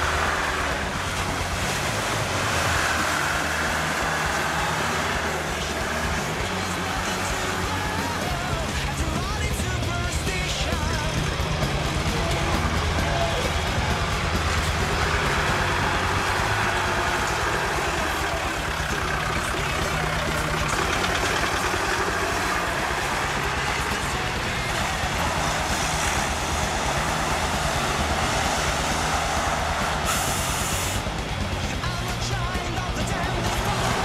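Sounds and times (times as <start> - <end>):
off-road vehicle engine under load: 0.0 - 34.0
vehicle churning through mud and water: 0.0 - 34.0
burst of hiss: 30.0 - 31.0.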